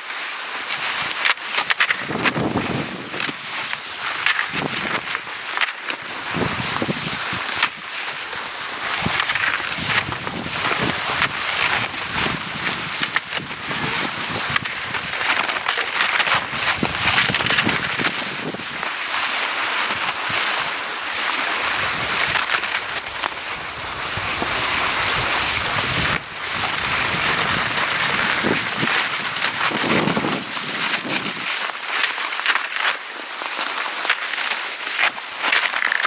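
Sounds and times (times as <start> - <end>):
skis hissing and scraping on snow: 0.0 - 36.0
wind buffeting microphone: 2.0 - 3.5, 6.2 - 7.8, 8.9 - 15.2, 16.4 - 18.8, 23.1 - 31.5.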